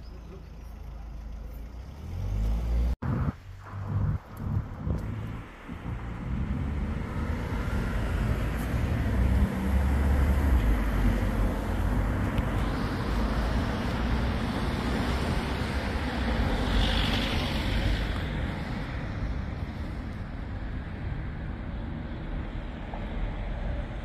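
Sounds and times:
cars passing along a street: 0.0 - 24.0.

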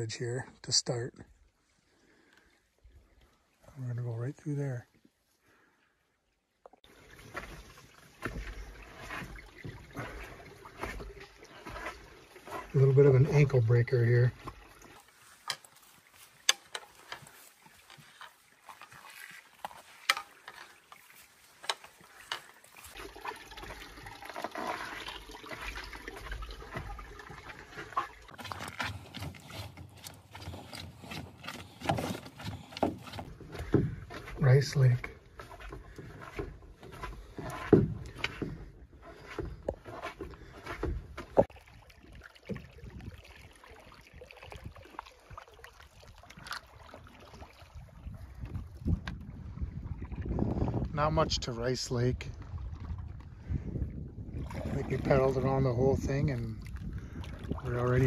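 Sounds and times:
water trickling along hull: 0.0 - 58.0
paddle dipping in water: 1.3 - 3.9, 4.9 - 58.0
footsteps on rock: 7.3 - 12.8, 28.3 - 41.5
wind rumble on microphone: 42.7 - 43.2, 47.6 - 58.0.

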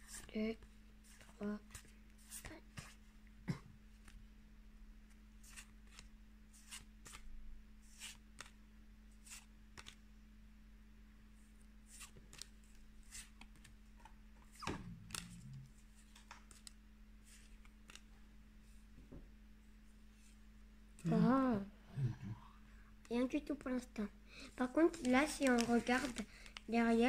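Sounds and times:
faint steady hum: 0.0 - 27.0
cards flicking: 9.3 - 10.0, 14.5 - 16.8.

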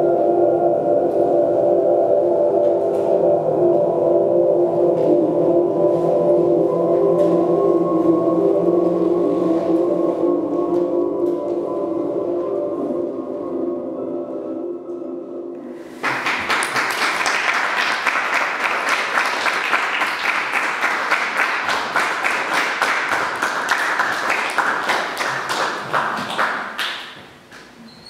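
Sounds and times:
audience applauding: 16.0 - 27.2.

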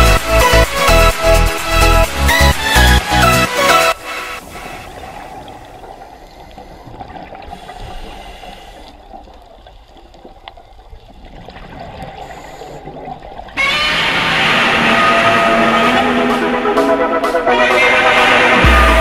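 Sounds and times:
loud music: 0.0 - 4.5, 13.6 - 19.0
bubbling: 4.0 - 16.0
muffled underwater noise: 4.0 - 16.6.

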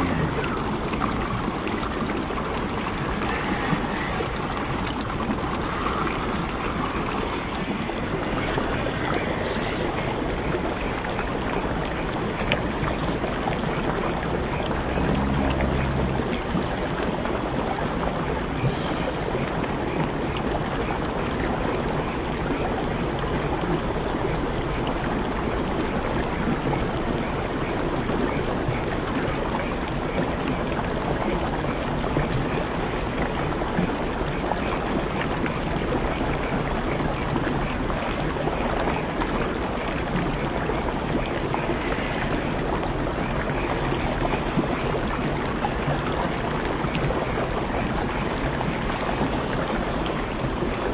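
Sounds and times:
stream rushing over rocks: 0.0 - 50.9.

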